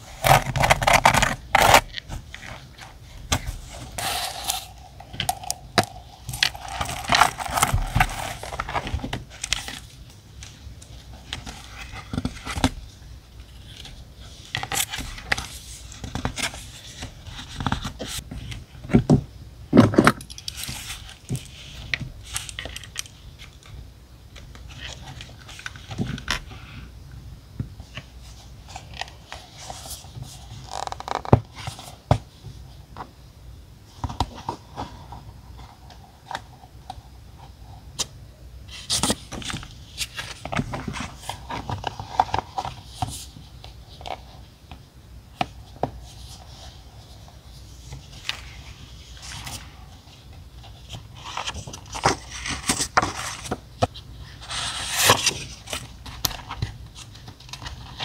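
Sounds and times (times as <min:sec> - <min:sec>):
paper rustling and scraping: 0:00.0 - 0:18.6, 0:45.8 - 0:58.0.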